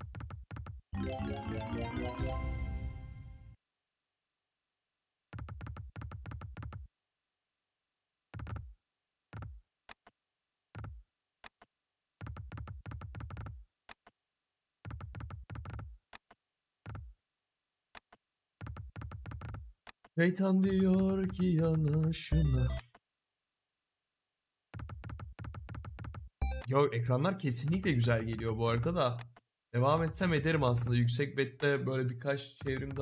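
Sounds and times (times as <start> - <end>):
electronic ticking and clunking: 32.6 - 33.0.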